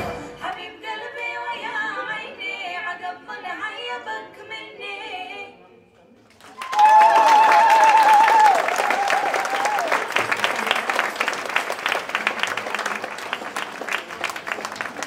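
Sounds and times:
audience applauding: 6.3s - 15.0s
high warbling cheers: 6.6s - 10.2s.

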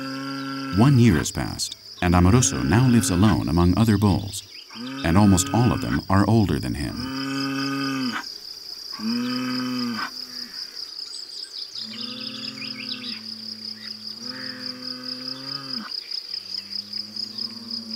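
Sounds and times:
bulls mooing: 0.0s - 8.2s
crickets chirping: 0.0s - 17.9s.

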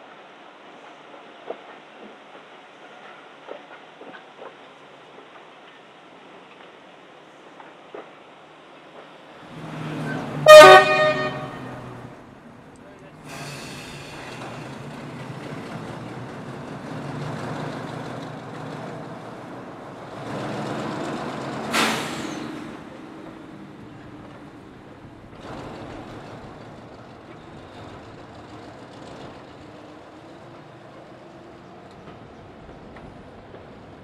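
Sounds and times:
air release hiss: 13.2s - 14.6s, 21.7s - 22.6s.

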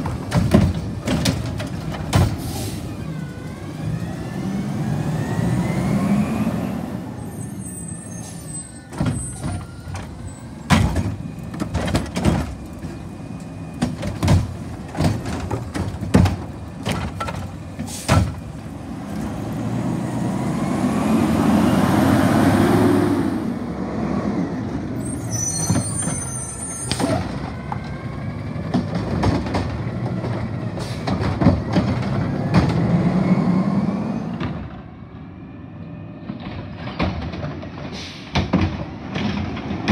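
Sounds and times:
cart being dumped bangs: 0.0s - 2.9s, 8.8s - 19.5s
diesel engine revving: 1.8s - 8.4s, 17.6s - 25.5s, 27.0s - 34.8s
air brake hiss: 2.4s - 2.9s, 37.9s - 38.4s.

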